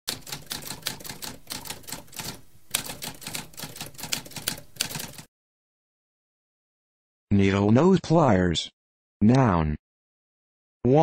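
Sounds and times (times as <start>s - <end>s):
typewriter typing: 0.1s - 5.3s.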